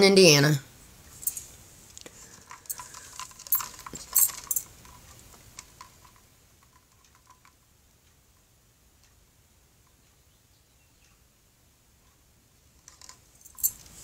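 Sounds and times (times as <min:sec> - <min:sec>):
clicks taps and rattles of handling: 0:01.2 - 0:07.7, 0:12.8 - 0:14.0.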